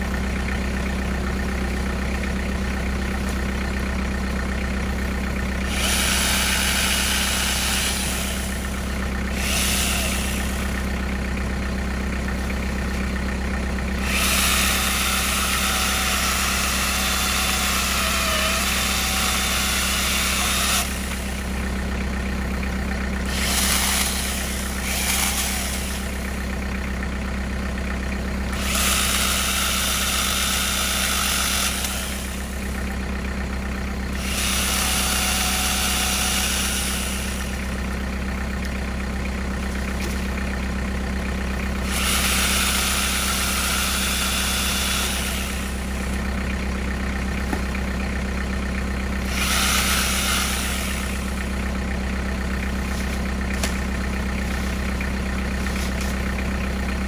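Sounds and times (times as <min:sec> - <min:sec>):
tractor engine idling: 0:00.0 - 0:57.0
chainsaw cutting tree limbs: 0:05.6 - 0:10.9, 0:14.0 - 0:21.5, 0:23.2 - 0:26.4, 0:28.5 - 0:32.8, 0:34.1 - 0:37.8, 0:41.8 - 0:46.2, 0:49.2 - 0:51.6, 0:52.7 - 0:54.9.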